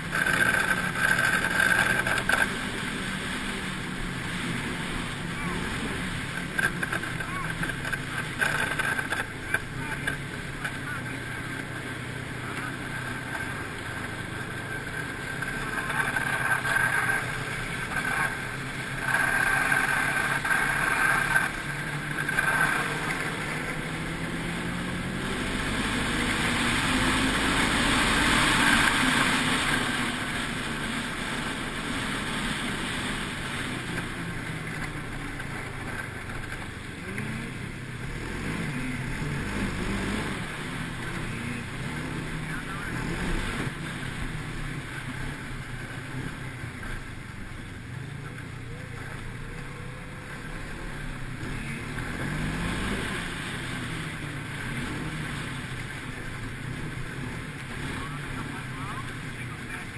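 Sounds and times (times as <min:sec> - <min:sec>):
snowmobile engine running: 0:00.0 - 0:59.9.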